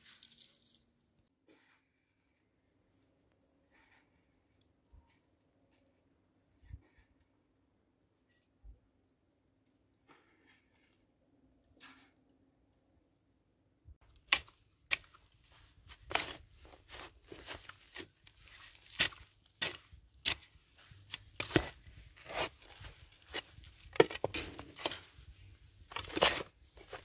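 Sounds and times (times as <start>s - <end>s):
straw and earth rustling: 0.0s - 7.1s, 14.0s - 27.0s
spade crunching into soil: 14.0s - 27.0s.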